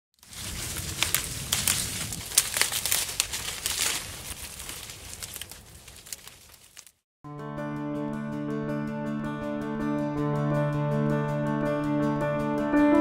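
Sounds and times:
leaves and grapes rustling: 0.2s - 7.0s.

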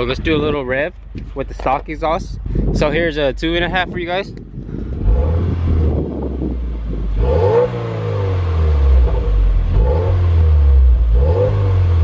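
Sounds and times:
car engine revving and idling: 4.4s - 12.0s.

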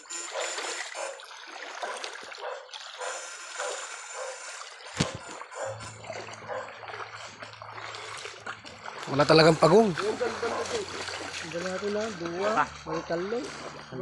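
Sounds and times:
feet splashing through water: 0.2s - 14.0s
low hum: 3.0s - 14.0s.

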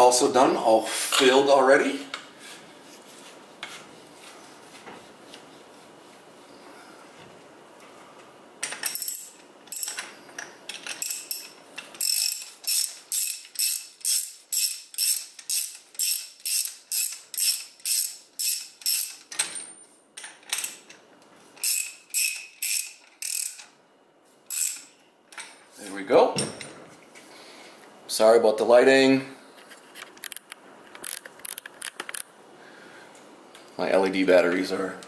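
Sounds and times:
ratchet wrench clicking: 10.9s - 19.2s, 21.6s - 23.7s, 24.5s - 24.9s.

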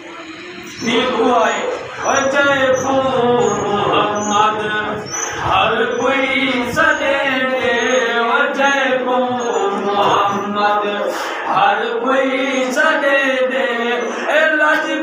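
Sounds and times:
man chanting: 0.7s - 15.0s.

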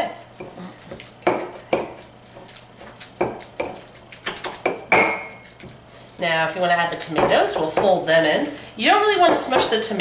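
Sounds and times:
pestle knocking in stone mortar: 1.2s - 2.0s, 3.2s - 5.3s, 7.1s - 8.0s.

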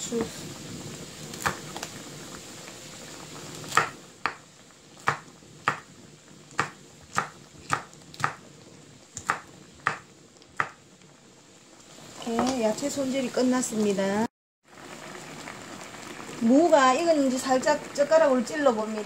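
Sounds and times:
knife tapping on wooden board: 5.1s - 5.8s, 9.2s - 10.0s, 10.6s - 10.8s.

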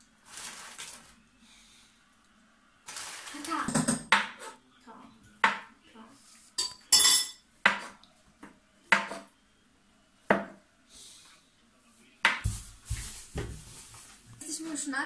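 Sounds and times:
knife clinking against a plate: 6.6s - 7.9s.

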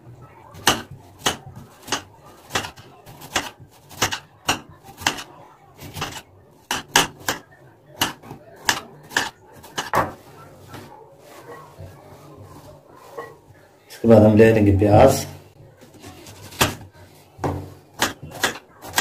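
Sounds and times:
knife slicing potato: 0.5s - 10.9s, 15.9s - 19.0s.

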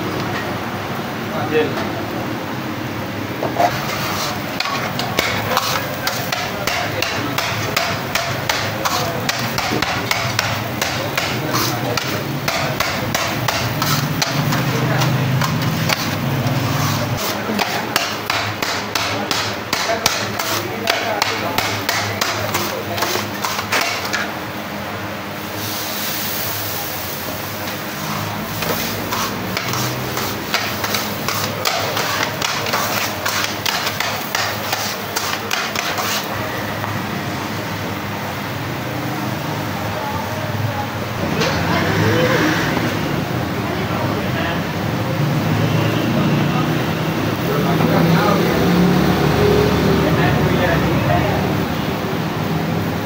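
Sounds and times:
metal spatulas chopping on griddle: 3.6s - 24.3s, 27.7s - 36.3s.

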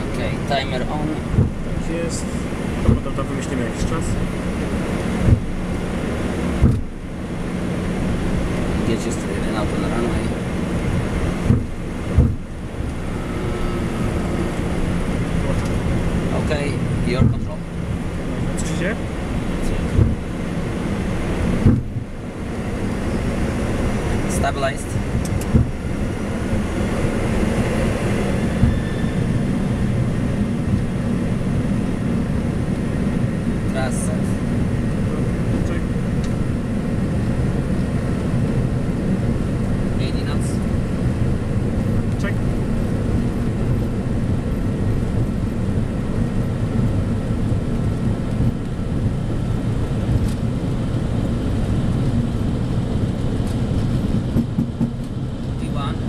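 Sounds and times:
aircraft engines at takeoff: 0.0s - 56.0s
aircraft bump: 11.4s - 12.5s, 53.1s - 55.2s.

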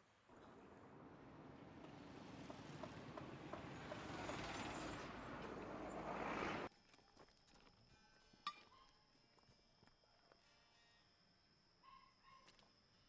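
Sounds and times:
road traffic passing: 0.1s - 6.7s.

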